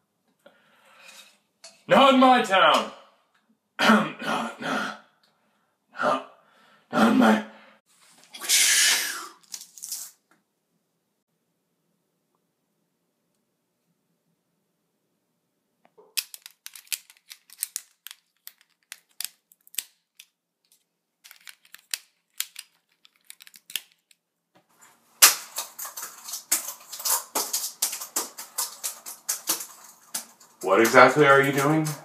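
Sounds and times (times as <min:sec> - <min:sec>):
fast typing on keyboard: 0:25.4 - 0:32.0.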